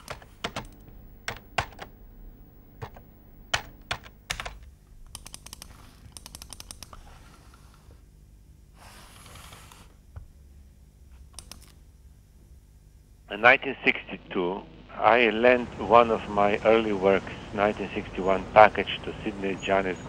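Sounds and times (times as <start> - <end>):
computer keyboard typing: 0.0 - 7.0, 11.4 - 11.8.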